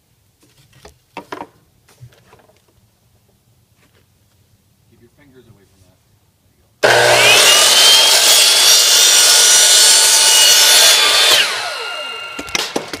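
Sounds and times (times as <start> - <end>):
miter saw cutting pipe: 6.8 - 13.0.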